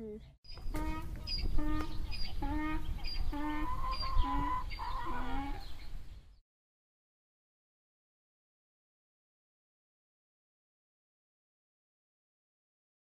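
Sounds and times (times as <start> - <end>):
donkey braying: 0.7 - 5.7.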